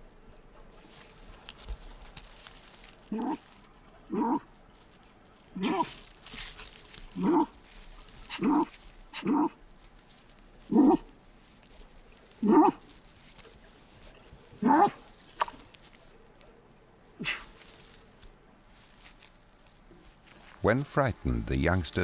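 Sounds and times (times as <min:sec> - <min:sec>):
animal whining calls: 0:03.1 - 0:04.5, 0:05.5 - 0:06.0, 0:07.2 - 0:07.6, 0:08.3 - 0:09.6, 0:10.7 - 0:11.1, 0:12.4 - 0:12.9, 0:14.5 - 0:15.0.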